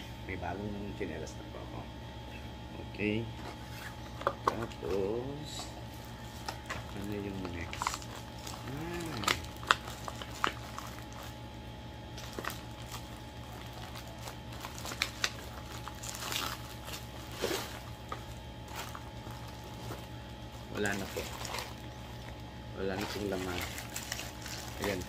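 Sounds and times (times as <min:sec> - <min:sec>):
plastic packaging crinkling: 0:06.1 - 0:11.5, 0:12.1 - 0:25.0.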